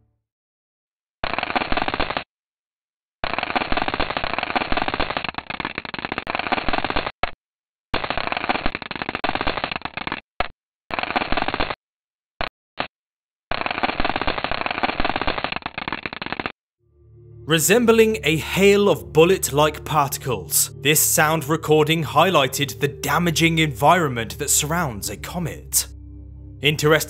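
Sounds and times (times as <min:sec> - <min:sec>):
crackling hail of rapid clicks: 0:08.0 - 0:10.2, 0:13.5 - 0:16.5.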